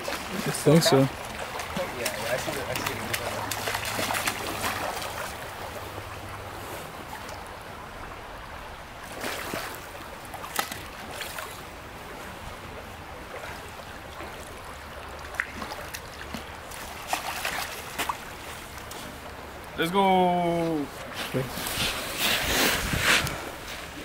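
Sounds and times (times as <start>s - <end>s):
short splashes or knocks: 0.0s - 5.4s, 15.2s - 18.9s
creek water flowing: 0.0s - 24.0s.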